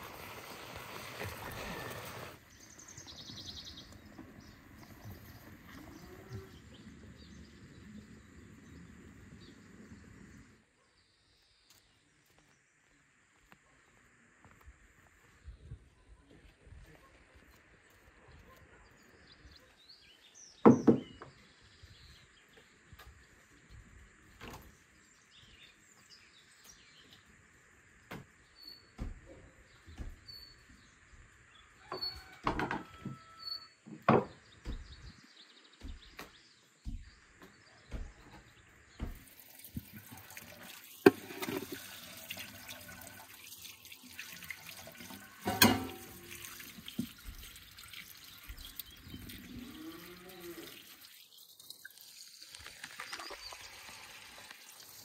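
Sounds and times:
sharp knocks and thuds: 0:29.0 - 0:30.4, 0:33.9 - 0:39.3
tap water running into bowl: 0:39.0 - 0:55.0
water splashing: 0:39.1 - 0:55.0.

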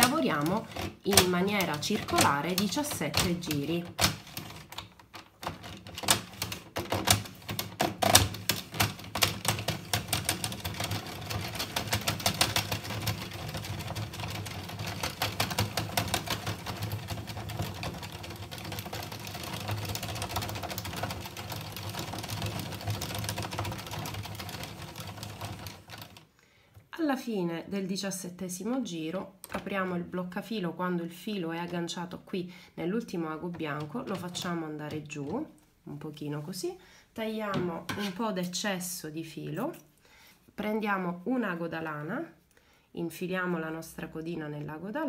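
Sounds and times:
knitting machine clicking rattle: 0:00.0 - 0:26.3.

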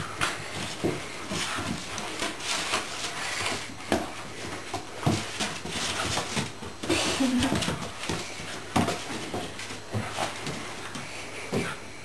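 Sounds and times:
puppy paws scrabbling on wood: 0:00.1 - 0:11.8
knocks and thumps on floor: 0:03.5 - 0:11.7.

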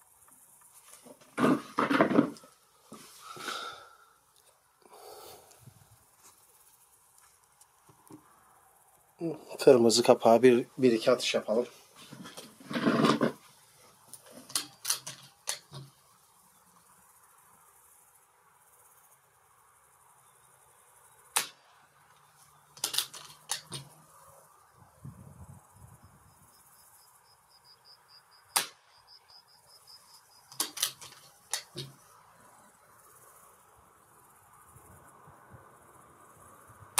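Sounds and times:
cricket chirping: 0:00.0 - 0:36.9
air rifle shots: 0:21.4 - 0:21.6, 0:28.6 - 0:28.8
rifle action clicks: 0:22.8 - 0:23.9, 0:30.5 - 0:31.9.

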